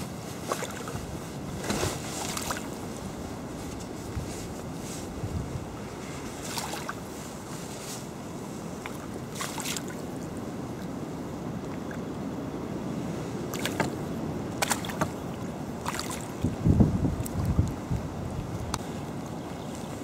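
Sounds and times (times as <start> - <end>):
wind rumble on microphone: 0.0 - 20.0
fish splashing in water: 0.5 - 1.0, 6.5 - 7.0, 8.8 - 10.1, 13.5 - 16.5.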